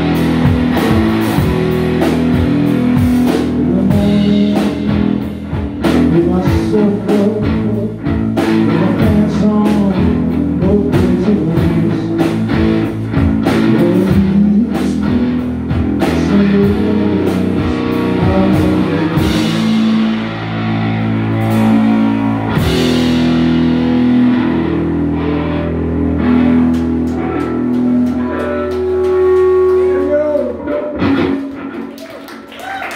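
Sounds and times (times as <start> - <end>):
drum kit: 0.0 - 32.9
electric guitar: 0.0 - 32.9
man singing: 2.5 - 12.7, 13.4 - 20.6.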